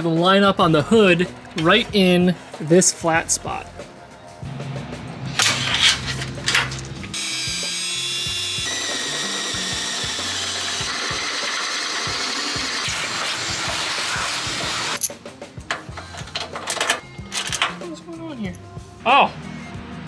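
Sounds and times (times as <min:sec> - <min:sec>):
power drill boring metal: 0:07.1 - 0:15.1.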